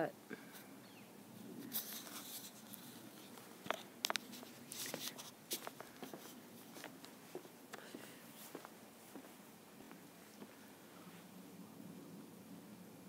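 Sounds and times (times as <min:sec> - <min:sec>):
footsteps on wooden deck: 0:03.3 - 0:10.7.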